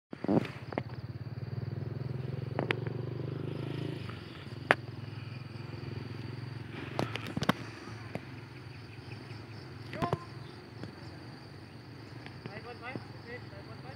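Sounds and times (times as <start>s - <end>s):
insects chirring: 0.1s - 13.9s
engine throbbing: 0.2s - 13.9s.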